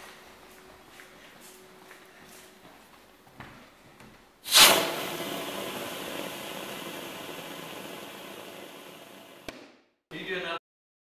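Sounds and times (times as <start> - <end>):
vacuum suction rush and hiss: 4.5 - 9.5.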